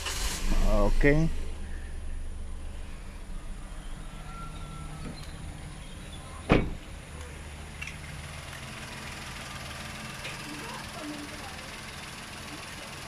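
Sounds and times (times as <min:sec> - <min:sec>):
car engine idling: 0:00.0 - 0:13.0
car door shutting: 0:06.4 - 0:06.9.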